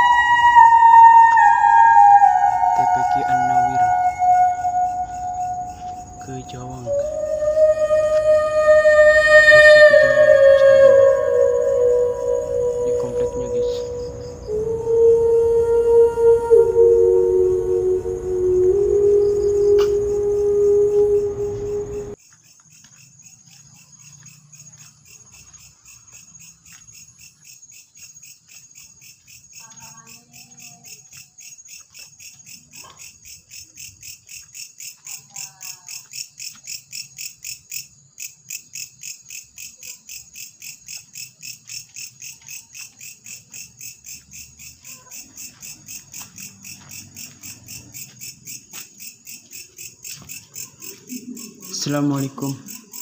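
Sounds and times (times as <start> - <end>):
crickets chirping: 0.0 - 53.0.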